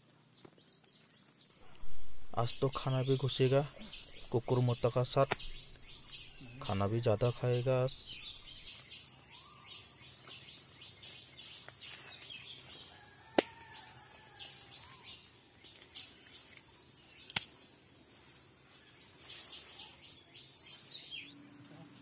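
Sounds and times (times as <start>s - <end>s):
insects droning: 0.0s - 22.0s
soft bird calls: 0.4s - 17.6s
sharp clicks: 17.2s - 17.6s.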